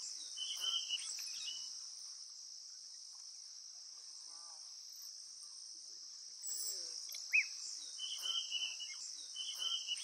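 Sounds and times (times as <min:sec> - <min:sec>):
crickets and insects chorus: 0:00.0 - 0:10.0
high squeaky calls and chirps: 0:06.4 - 0:10.0.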